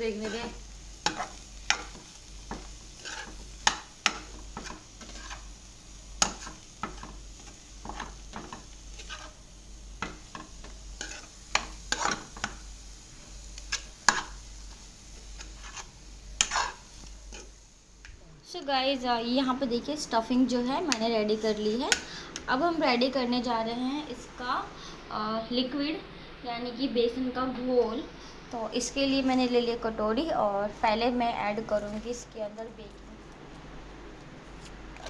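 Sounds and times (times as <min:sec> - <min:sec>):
faint sizzle: 0:00.0 - 0:35.0
metal spoon scraping a pan: 0:00.1 - 0:05.5, 0:06.2 - 0:09.4, 0:10.0 - 0:12.6, 0:15.4 - 0:17.6.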